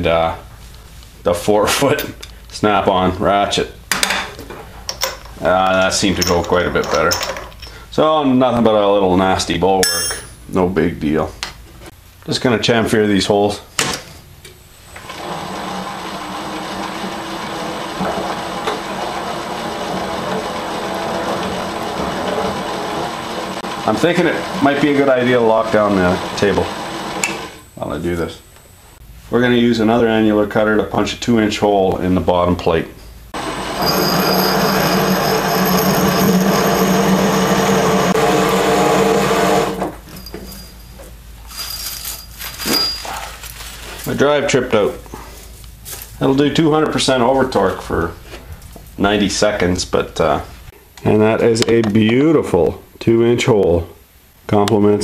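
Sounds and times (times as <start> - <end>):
milling machine whine: 15.0 - 27.6, 33.4 - 40.0.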